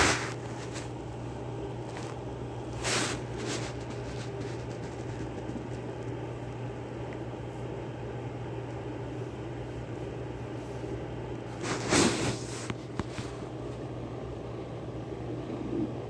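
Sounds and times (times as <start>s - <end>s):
rustling of blanket: 0.0s - 1.0s, 1.8s - 6.2s, 10.4s - 13.5s
steady low hum: 0.0s - 16.0s.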